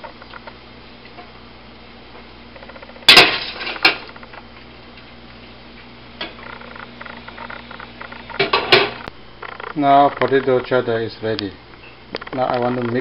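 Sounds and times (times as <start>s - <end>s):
metal kitchenware clanking: 3.1s - 4.0s.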